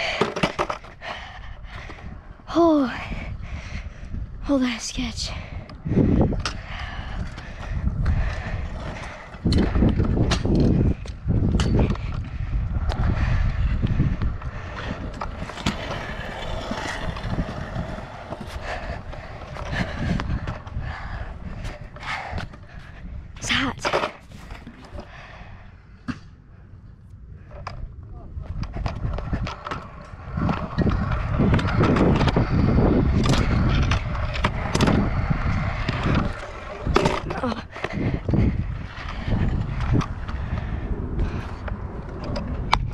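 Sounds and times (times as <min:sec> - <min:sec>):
scooter wheels rolling on concrete: 0:00.0 - 0:42.9
wind buffeting microphone: 0:00.0 - 0:42.9
scooter clicks: 0:05.6 - 0:22.6, 0:28.6 - 0:42.9.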